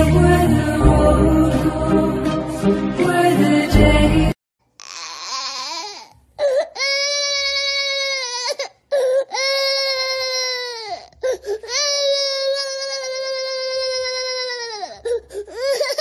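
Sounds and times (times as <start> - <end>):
baby crying: 4.8 - 16.0.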